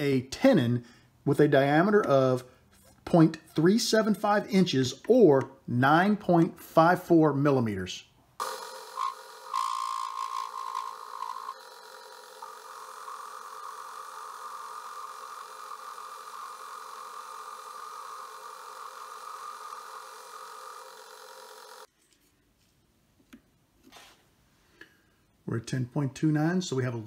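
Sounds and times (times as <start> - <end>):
metal lathe humming: 8.4 - 21.9.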